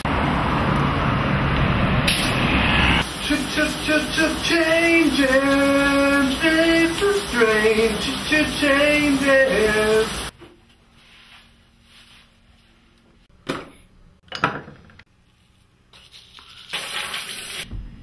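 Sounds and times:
woman singing: 3.3s - 10.2s.

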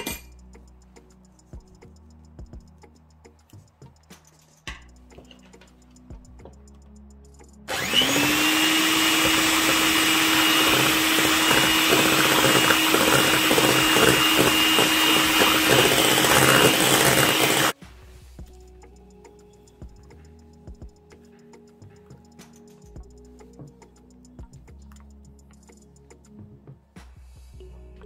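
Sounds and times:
electric hand mixer whining: 7.7s - 17.8s.

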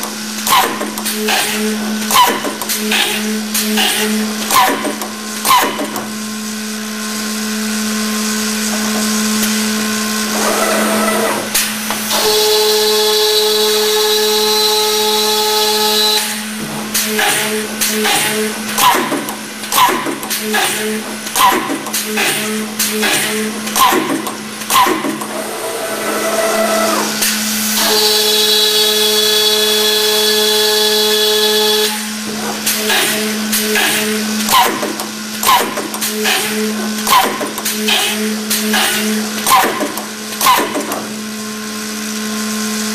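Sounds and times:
sharp mechanical clacks: 0.0s - 6.1s, 16.9s - 25.4s, 32.6s - 41.1s
machine hum: 0.0s - 42.9s.

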